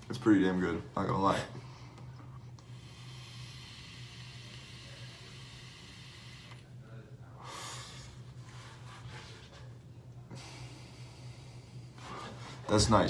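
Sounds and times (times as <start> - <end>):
steady low hum: 0.0 - 13.0
breathy exhale: 2.7 - 6.6.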